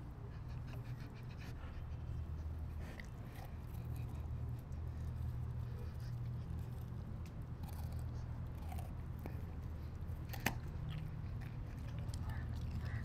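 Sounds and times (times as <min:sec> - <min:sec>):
steady low hum: 0:00.0 - 0:13.0
puppy chewing food: 0:00.2 - 0:13.0
small crunches: 0:06.5 - 0:13.0.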